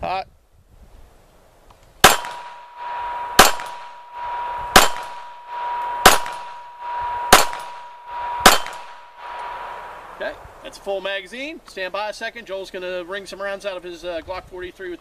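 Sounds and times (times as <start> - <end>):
pistol shots with echo: 2.0 - 2.7, 3.4 - 4.0, 4.7 - 5.3, 6.0 - 6.6, 7.3 - 9.1
steady high tone: 2.2 - 11.1.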